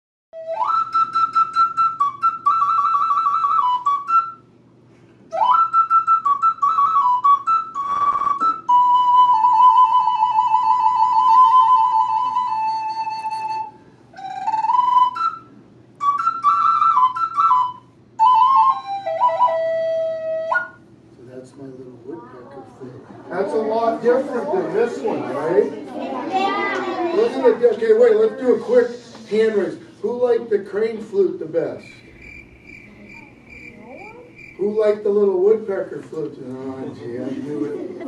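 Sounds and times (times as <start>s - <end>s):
wooden flute playing: 0.4s - 4.5s, 5.3s - 20.9s.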